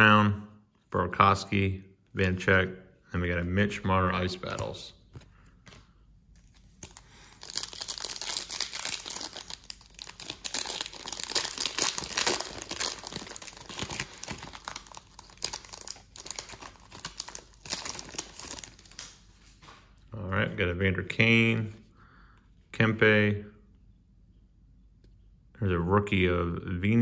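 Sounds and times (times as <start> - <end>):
foil wrapper crinkling: 5.2 - 19.3.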